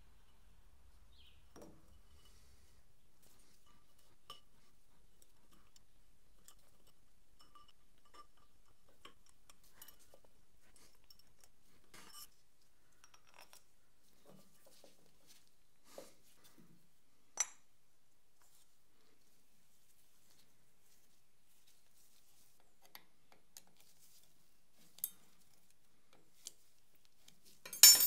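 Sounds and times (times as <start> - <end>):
metal parts rattle: 27.7 - 28.0.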